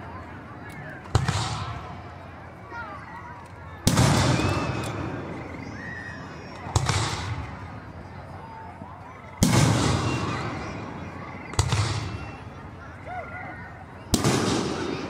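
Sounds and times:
fireworks booming with echo: 1.0 - 2.1, 3.8 - 5.8, 6.4 - 7.9, 9.4 - 12.8, 14.1 - 15.0.

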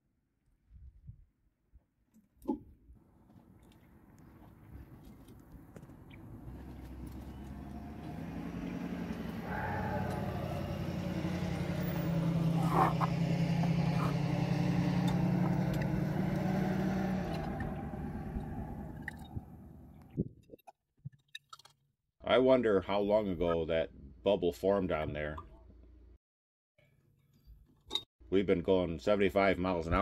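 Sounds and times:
vehicle engine passing by: 4.2 - 20.1.

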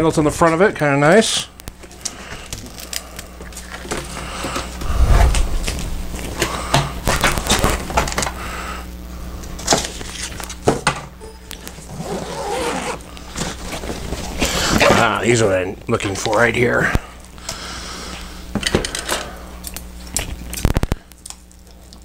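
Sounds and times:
low thud: 4.8 - 6.1.

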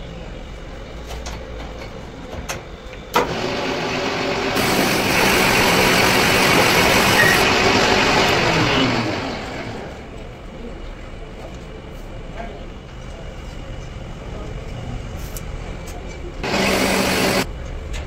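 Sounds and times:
metal lathe cutting steel: 3.2 - 10.1, 16.4 - 17.5.

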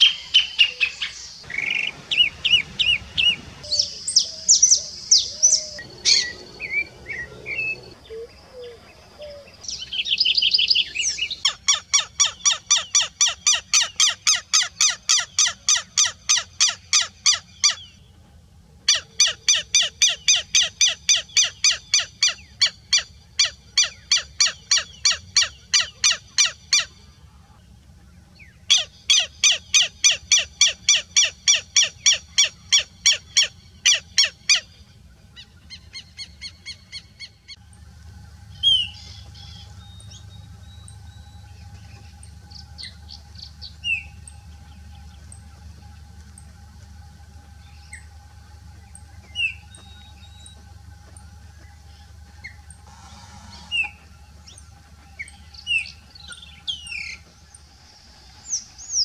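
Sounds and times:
bird chirps and calls: 0.0 - 17.9
lapwing strident calls: 0.0 - 17.9, 38.4 - 59.0.

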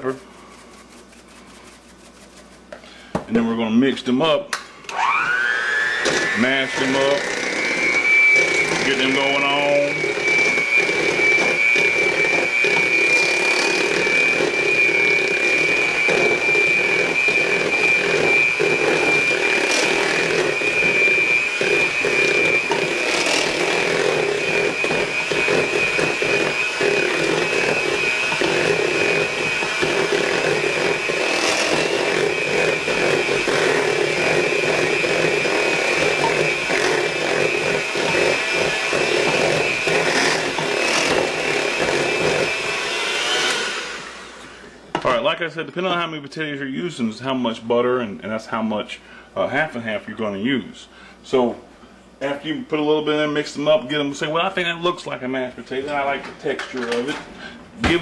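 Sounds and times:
electric hand mixer whining: 4.9 - 44.9.

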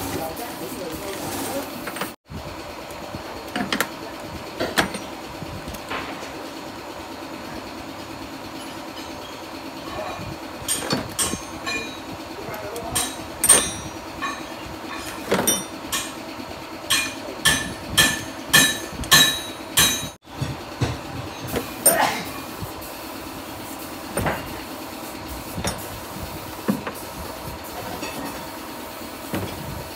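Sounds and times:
steady background hum: 0.0 - 29.9
tools knocking on metal: 13.0 - 16.2, 16.9 - 21.6.

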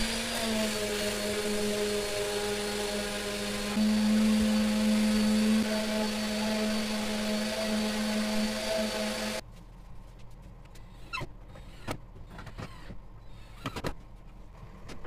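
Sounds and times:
electric motor humming: 0.0 - 9.4.

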